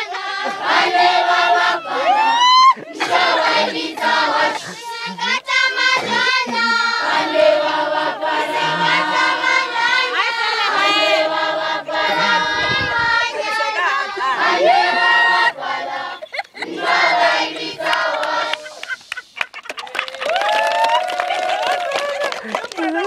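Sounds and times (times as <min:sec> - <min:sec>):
children's choir singing: 0:00.0 - 0:18.9
rising vocal whoop: 0:01.7 - 0:02.9, 0:20.0 - 0:22.4.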